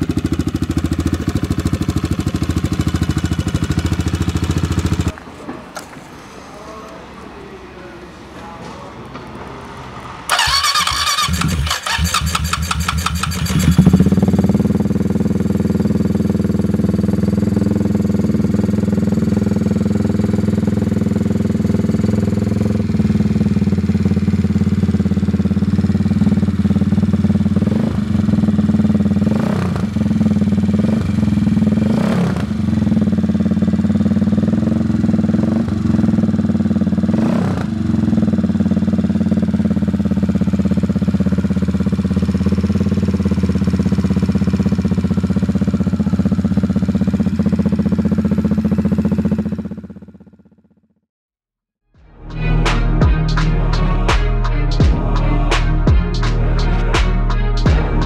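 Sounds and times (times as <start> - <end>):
motorcycle engine idling and revving: 0.0 - 5.2, 9.1 - 51.1, 52.4 - 58.0
electric starter cranking: 10.3 - 14.0.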